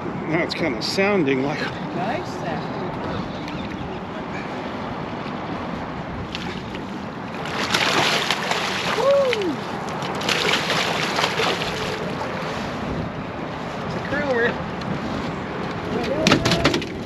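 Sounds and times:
water noise: 0.0s - 17.0s
wind: 0.0s - 17.0s
fish thrashing and splashing: 6.3s - 12.3s.

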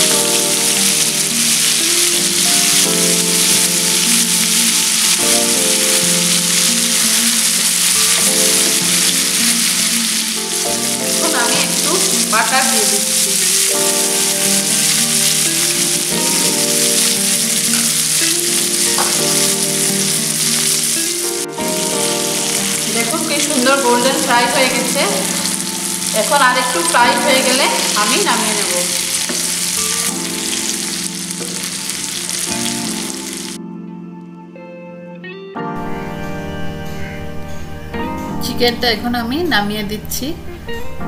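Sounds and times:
chicken sizzling in frying pan: 0.0s - 33.6s
soft background music: 0.0s - 41.0s.

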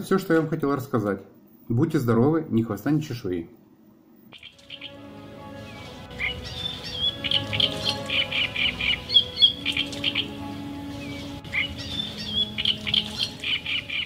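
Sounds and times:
birds chirping: 4.3s - 14.0s
soft background music: 4.3s - 14.0s.

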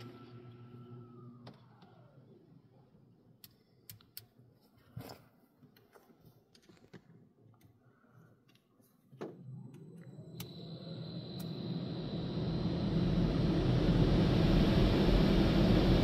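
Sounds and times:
car wash machine hum winding down: 9.6s - 16.0s.

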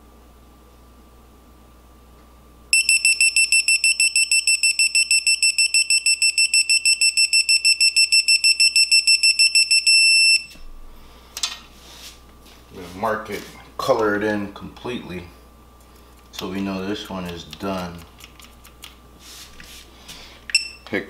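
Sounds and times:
torque wrench beeping rapidly: 2.8s - 10.5s.

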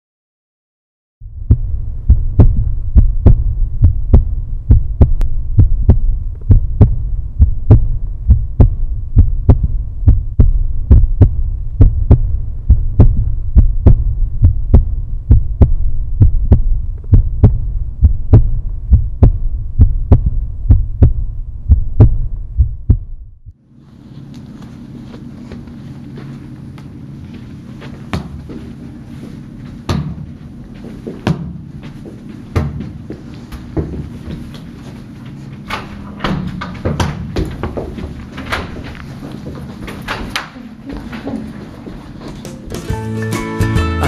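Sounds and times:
deep low drone: 1.2s - 23.5s
heartbeat thumps: 1.2s - 23.6s, 29.7s - 34.8s.

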